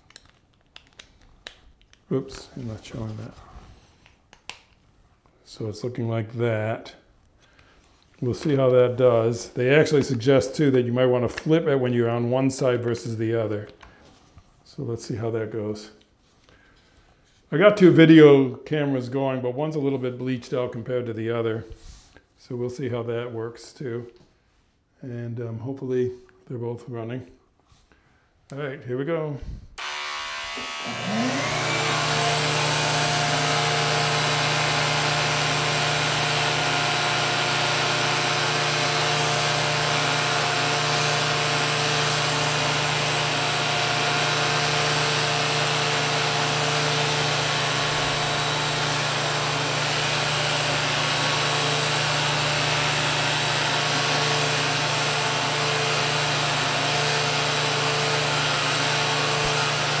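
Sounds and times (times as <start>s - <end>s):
vacuum haircutter humming: 29.8s - 60.0s.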